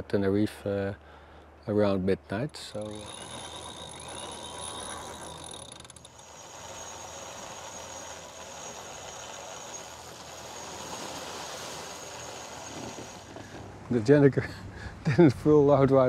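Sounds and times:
winch ratcheting clicks: 2.8s - 10.4s.

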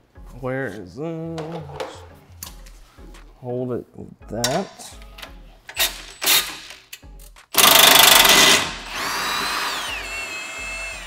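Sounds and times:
impact wrench hammering: 7.6s - 10.1s
impact wrench motor whine: 7.6s - 11.0s.

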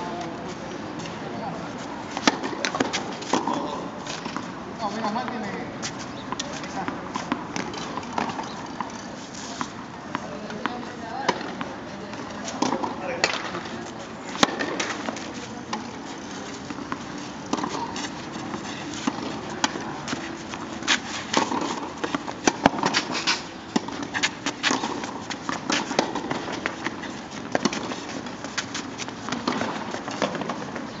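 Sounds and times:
racket hitting tennis ball: 2.1s - 4.5s, 12.4s - 13.6s, 14.3s - 30.9s
ball bouncing: 16.7s - 18.1s.

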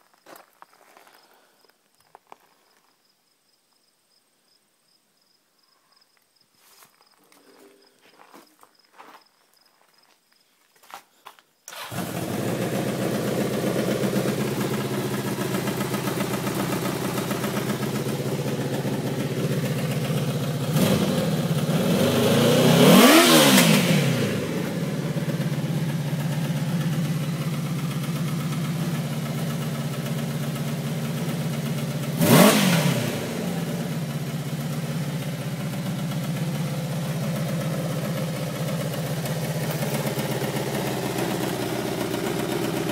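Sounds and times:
motorcycle engine idling and revving: 11.7s - 42.9s.

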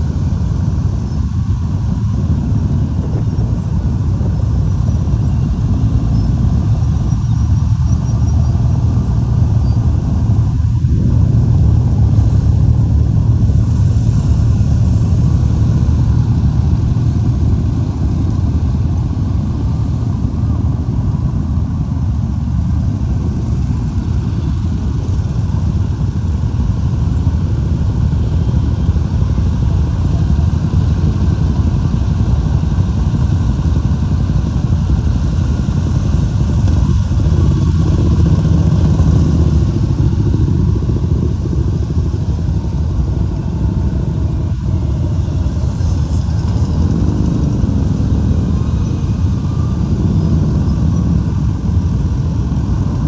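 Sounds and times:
motorcycles riding past: 44.5s - 53.0s.

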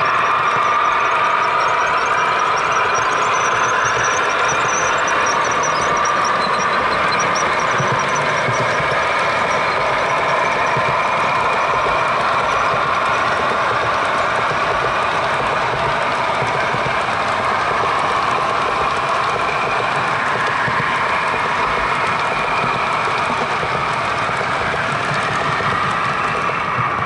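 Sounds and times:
model train wheels clattering on rails: 0.0s - 27.0s.

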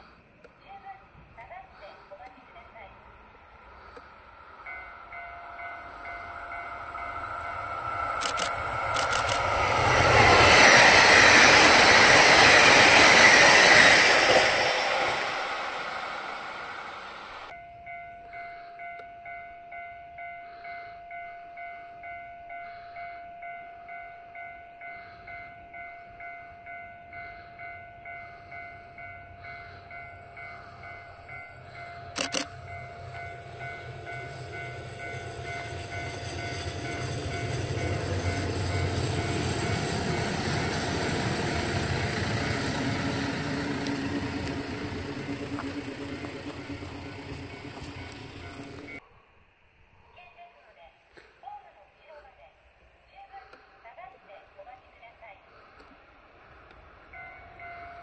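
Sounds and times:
diesel railcar engine: 0.0s - 49.0s
electric train passing: 0.0s - 49.8s, 53.6s - 58.0s
level crossing alarm ringing: 4.6s - 49.0s.

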